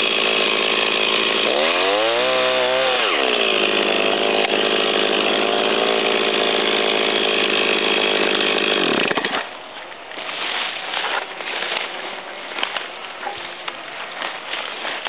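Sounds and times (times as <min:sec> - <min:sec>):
chainsaw engine revving: 0:00.0 - 0:09.5.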